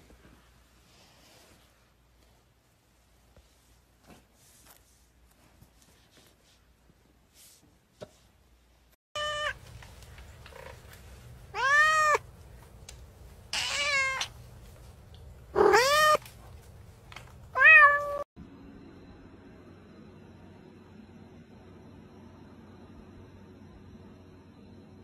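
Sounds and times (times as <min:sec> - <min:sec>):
cat meowing: 0:09.2 - 0:09.6, 0:11.5 - 0:12.2, 0:13.5 - 0:14.3, 0:15.5 - 0:16.2, 0:17.5 - 0:18.2.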